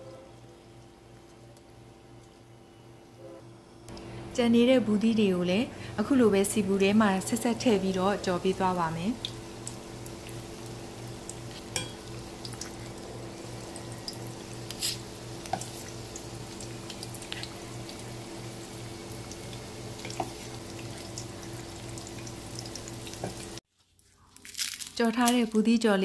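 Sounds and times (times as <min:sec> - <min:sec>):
batter deep-frying in hot oil: 0:05.0 - 0:26.0
oil popping and crackling: 0:08.5 - 0:25.6.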